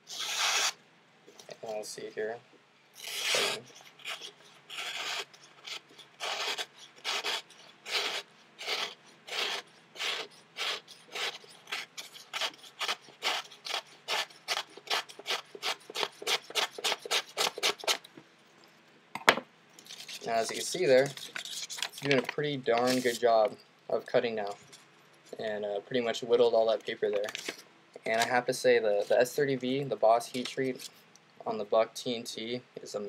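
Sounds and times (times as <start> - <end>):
knife slicing paper: 0.1 - 0.8, 3.0 - 18.1.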